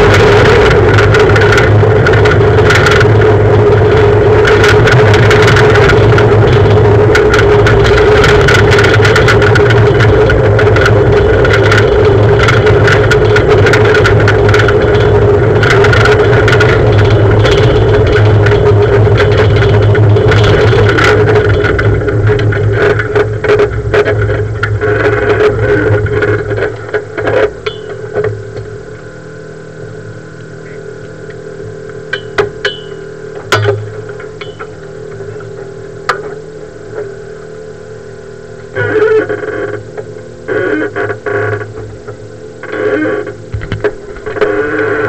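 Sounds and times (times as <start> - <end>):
low steady hum: 0.0 - 45.0
rally car engine: 0.0 - 45.0
sharp clicks and knocks: 4.0 - 28.7, 30.4 - 36.4, 43.5 - 44.9.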